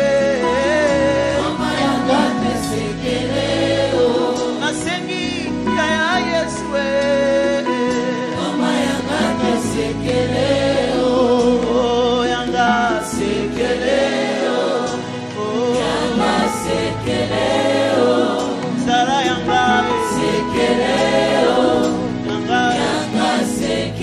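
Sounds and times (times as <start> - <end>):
choir singing: 0.0 - 4.9, 8.2 - 11.8, 13.0 - 24.0
instrumental backing: 0.0 - 24.0.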